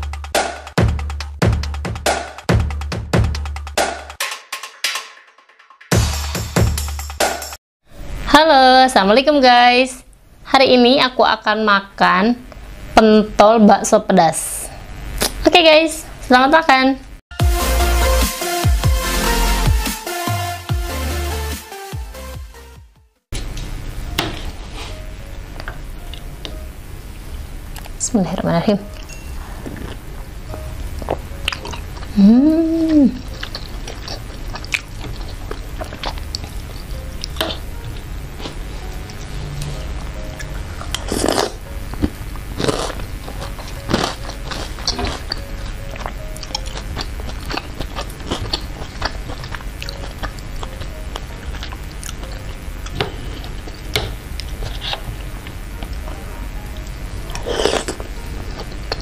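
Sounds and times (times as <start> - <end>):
close-miked chewing: 28.9 - 39.3, 40.4 - 59.0
person humming mmm: 29.3 - 59.0.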